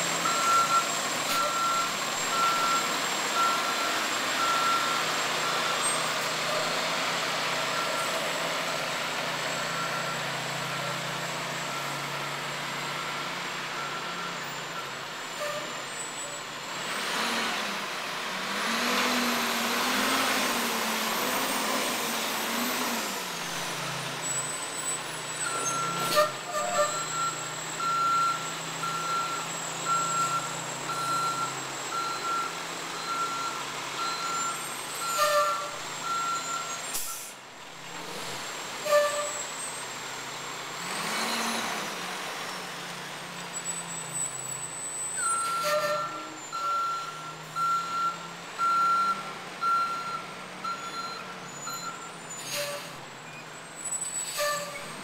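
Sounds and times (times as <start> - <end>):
reversing alarm beeping: 0.2 - 6.0, 25.4 - 37.3, 45.1 - 52.2.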